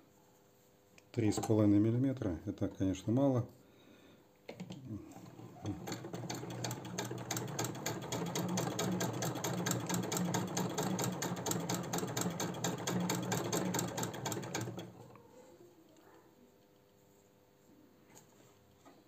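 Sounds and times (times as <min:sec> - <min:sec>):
sewing machine clatter: 0:05.1 - 0:15.1.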